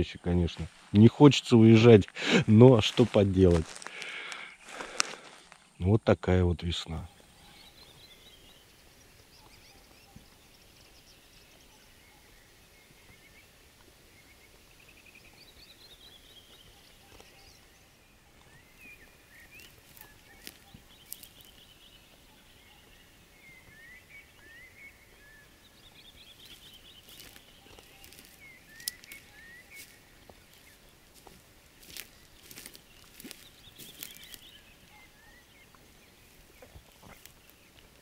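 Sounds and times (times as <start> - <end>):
songbird trilling: 14.2 - 30.9, 31.8 - 37.7.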